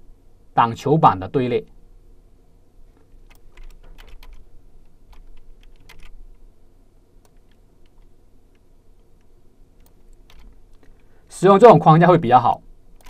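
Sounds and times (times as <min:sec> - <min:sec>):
computer keyboard and mouse clicking: 0:03.0 - 0:06.2, 0:07.2 - 0:11.1.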